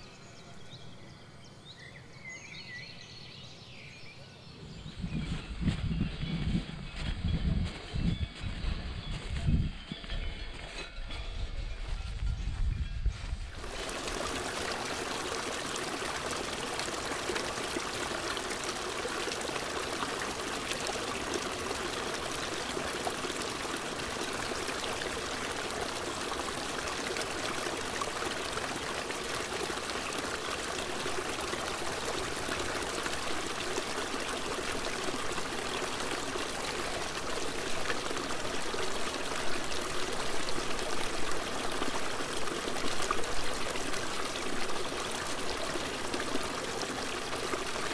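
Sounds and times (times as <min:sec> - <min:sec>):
stream running over rocks: 0:13.5 - 0:47.9.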